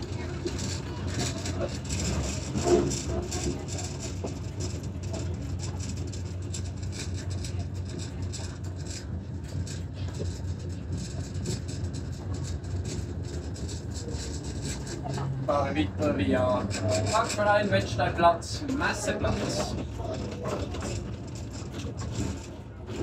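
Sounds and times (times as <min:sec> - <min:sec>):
light clicks and rattles: 0:00.0 - 0:15.5, 0:18.6 - 0:23.0
tram rumble and hum: 0:00.0 - 0:23.0.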